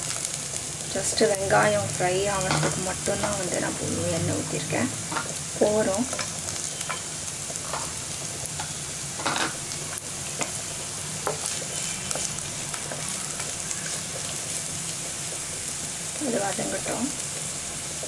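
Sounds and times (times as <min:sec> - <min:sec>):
onion sizzling in hot oil: 0:00.0 - 0:18.0.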